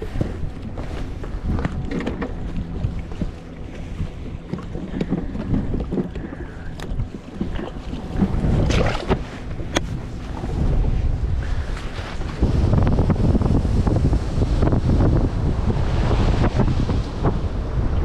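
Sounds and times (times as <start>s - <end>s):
clicks and knocks of handling fish: 0.0s - 10.0s
water lapping at a boat: 0.0s - 18.0s
wind buffeting microphone: 0.0s - 18.0s.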